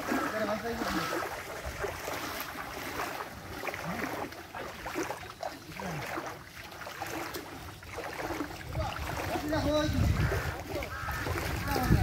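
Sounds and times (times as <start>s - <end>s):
footsteps wading through water: 0.0s - 12.0s
water sloshing and splashing: 0.0s - 12.0s.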